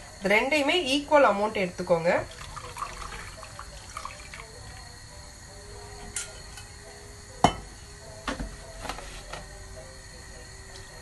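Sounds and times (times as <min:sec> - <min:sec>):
kitchenware clinking against pan: 0:07.4 - 0:07.7.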